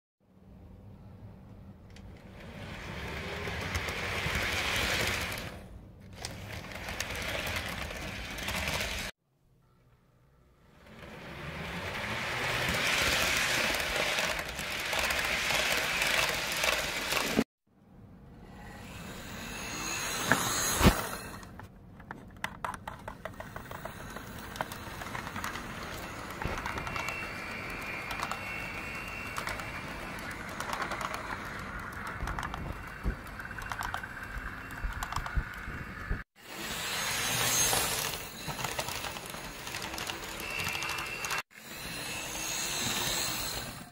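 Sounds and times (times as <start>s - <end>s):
model train wheels clicking: 1.8s - 9.1s, 10.8s - 17.4s, 22.4s - 41.4s.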